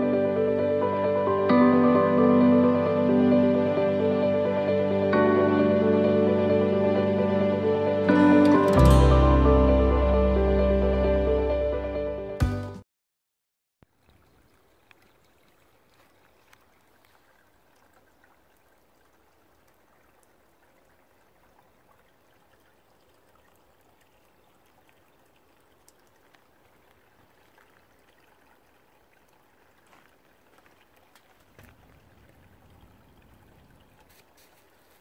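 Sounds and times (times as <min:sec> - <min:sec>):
stream trickling: 0:13.8 - 0:35.0.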